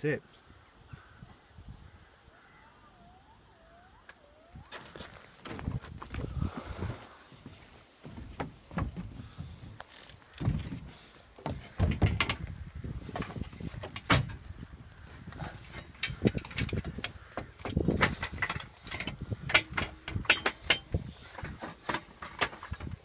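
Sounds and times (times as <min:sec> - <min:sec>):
knocks and clunks on metal van: 0:11.4 - 0:12.5, 0:13.1 - 0:14.5.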